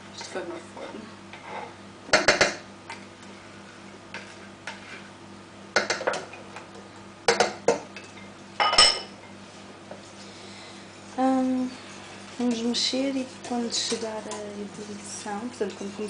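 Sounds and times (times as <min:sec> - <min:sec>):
faint steady hum: 0:00.0 - 0:16.0
whisk and spatula clinking on bowl: 0:12.3 - 0:15.0.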